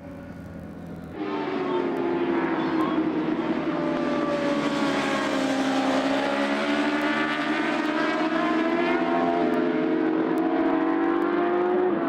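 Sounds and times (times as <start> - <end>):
racing motorcycle engines: 0.0 - 12.0.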